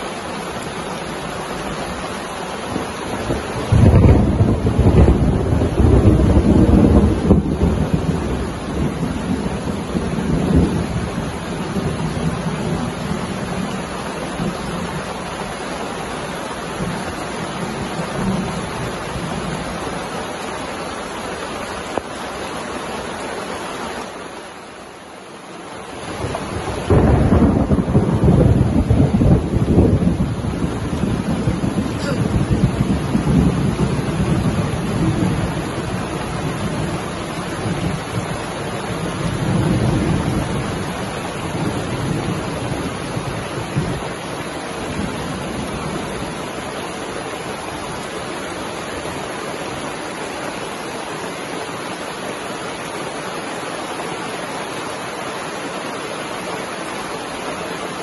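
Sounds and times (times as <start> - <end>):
heavy rain: 0.0 - 58.0
thunder rumbling: 2.7 - 15.4, 26.1 - 46.5.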